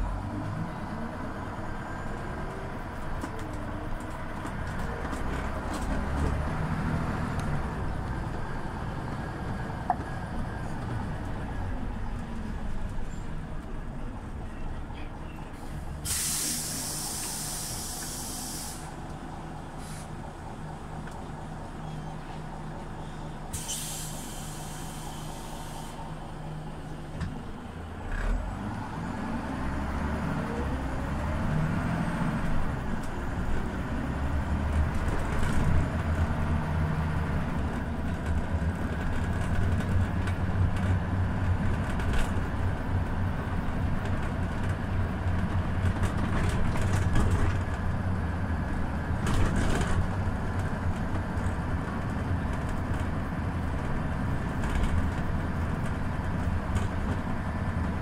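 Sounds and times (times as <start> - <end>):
bus engine pulling away: 0.0 - 58.0
air hiss: 16.0 - 19.0, 23.5 - 26.0.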